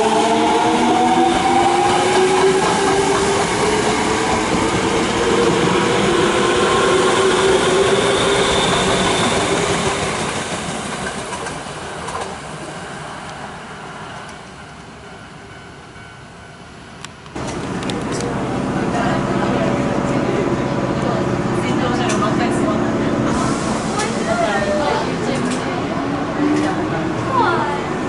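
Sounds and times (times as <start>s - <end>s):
train wheels running: 0.0s - 12.7s.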